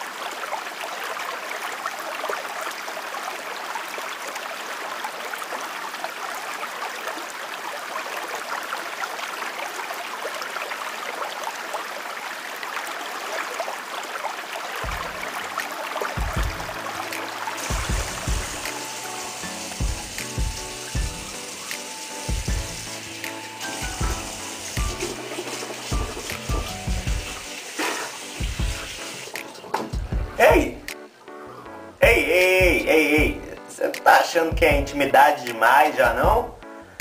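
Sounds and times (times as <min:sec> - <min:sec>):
running water hiss: 0:00.0 - 0:30.9
low music notes: 0:14.8 - 0:27.6.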